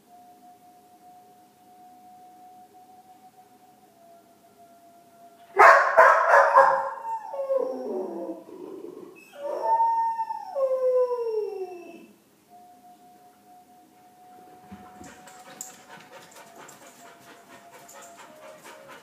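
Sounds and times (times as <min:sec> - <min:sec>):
dog howling: 0:05.4 - 0:12.1, 0:14.6 - 0:19.0
dog barking: 0:05.6 - 0:07.0.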